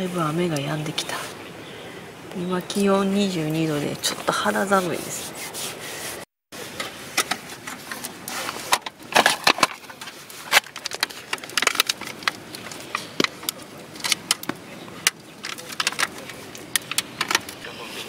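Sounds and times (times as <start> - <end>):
lantern panels clicking and rattling: 6.7 - 17.6.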